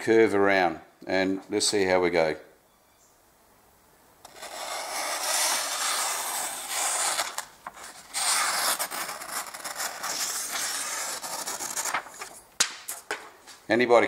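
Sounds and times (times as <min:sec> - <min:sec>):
knife cutting through paper: 0:04.2 - 0:12.4
paper rustling: 0:04.3 - 0:13.7.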